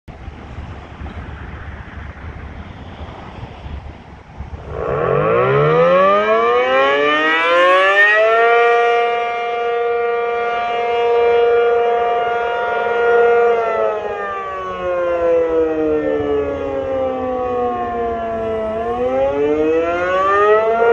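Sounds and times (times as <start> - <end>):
wind on microphone: 0.1 - 20.9
rotating siren wailing: 4.6 - 20.9.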